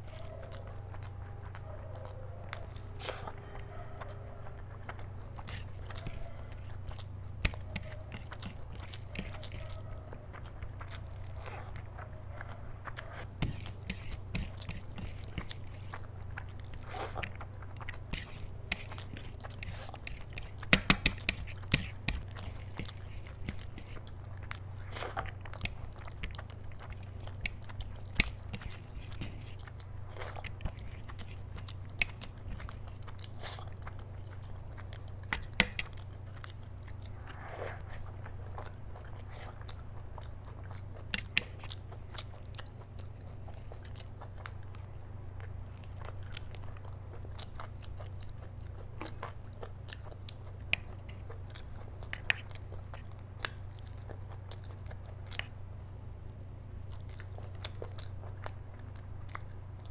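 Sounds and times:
close chewing with wet smacks: 0.0 - 59.9
low steady hum: 0.0 - 59.9.

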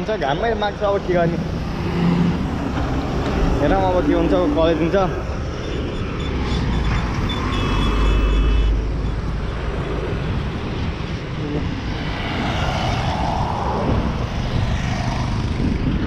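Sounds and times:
vehicles driving past: 0.0 - 16.0.

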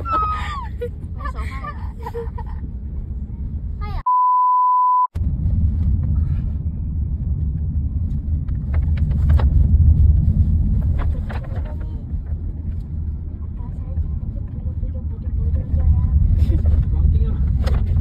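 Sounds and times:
high censor beep: 4.1 - 5.1
car cabin rumble: 5.2 - 18.0.

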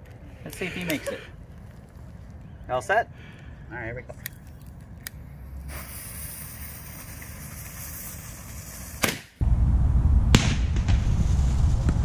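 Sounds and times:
firework fuse hissing: 5.4 - 9.4
rocket launch whoosh: 5.7 - 12.0
loud low rumble: 9.4 - 12.0.

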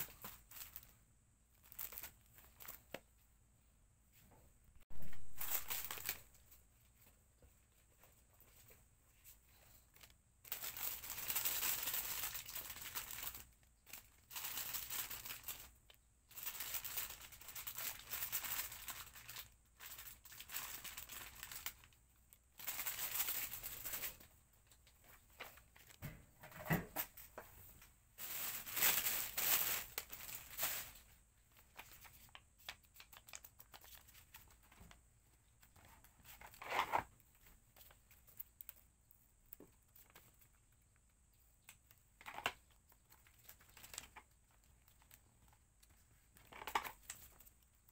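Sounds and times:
packaging crinkling and tearing: 1.6 - 2.9, 4.9 - 6.4, 9.9 - 22.0, 22.6 - 24.2, 28.2 - 31.0, 42.2 - 45.2.

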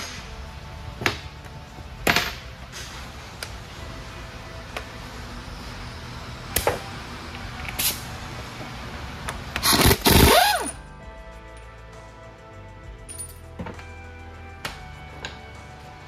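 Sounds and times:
pneumatic air hammer: 7.7 - 8.0, 9.6 - 10.8.

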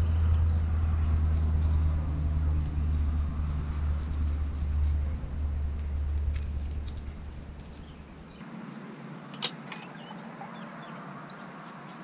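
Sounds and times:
steady low rumble: 0.0 - 8.4.

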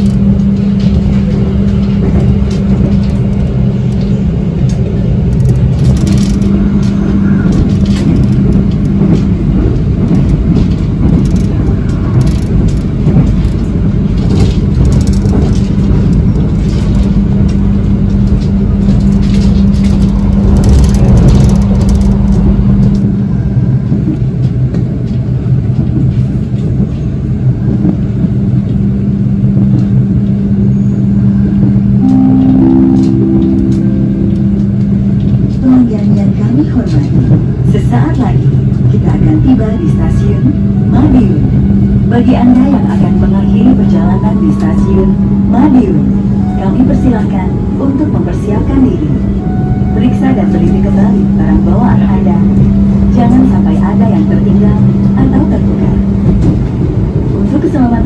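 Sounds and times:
constant low hum: 0.0 - 58.0
train wheels rumbling on track: 0.0 - 58.0.

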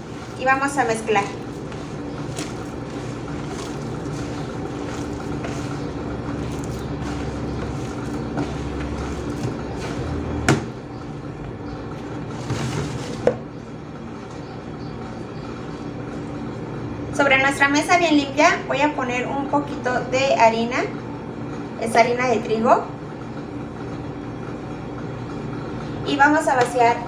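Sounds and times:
hand squishing sticky dough: 0.0 - 10.5
steady low hum: 0.0 - 27.0.

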